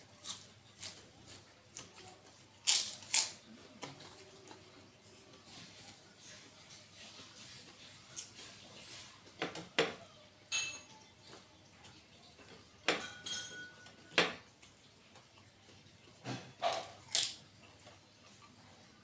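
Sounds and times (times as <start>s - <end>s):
plate clinking: 12.9s - 14.4s.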